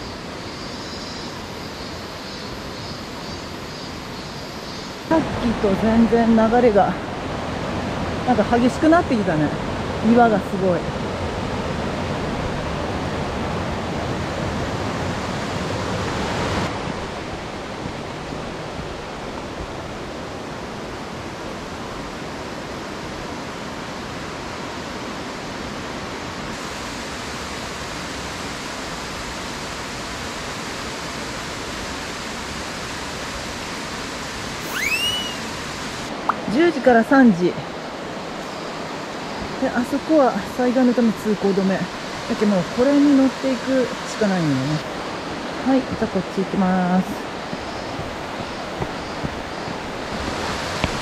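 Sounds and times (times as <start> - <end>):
stream rushing over rocks: 5.1 - 51.0
brief high chirp: 34.6 - 35.5.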